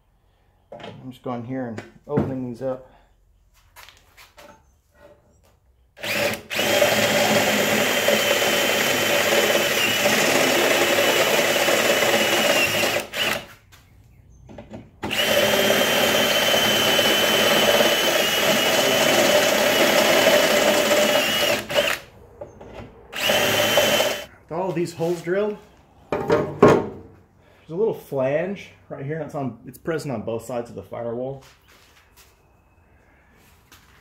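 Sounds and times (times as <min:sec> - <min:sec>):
cordless drill drilling sheet metal: 0:06.0 - 0:13.6, 0:15.0 - 0:22.1, 0:23.1 - 0:24.3.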